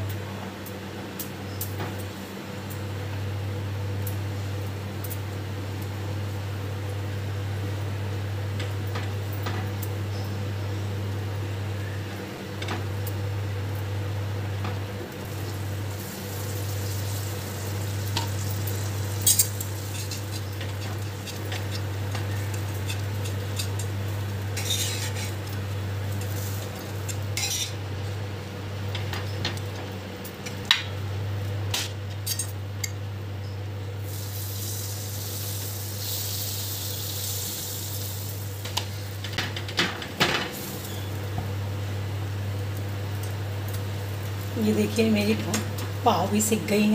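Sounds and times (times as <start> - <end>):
steady low hum: 0.0 - 46.9
butter sizzling on a hot pan: 15.2 - 27.7, 34.0 - 39.3
metal spatula scraping a pan: 24.6 - 25.4.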